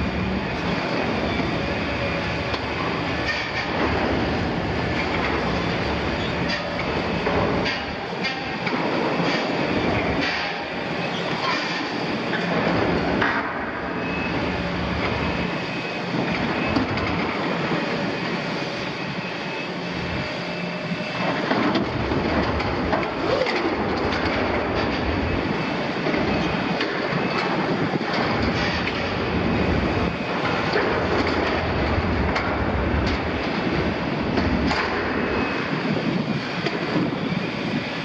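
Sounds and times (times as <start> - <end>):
diesel engine running: 0.0 - 8.2, 12.0 - 38.0.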